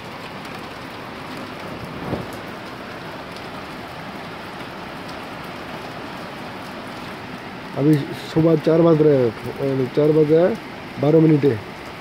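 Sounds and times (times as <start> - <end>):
heavy rain and hail on concrete: 0.0 - 12.0.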